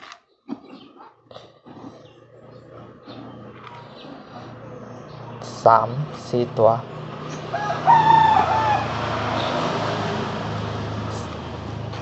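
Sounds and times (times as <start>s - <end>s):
low engine hum: 2.1s - 12.0s
rooster crowing: 7.4s - 10.0s.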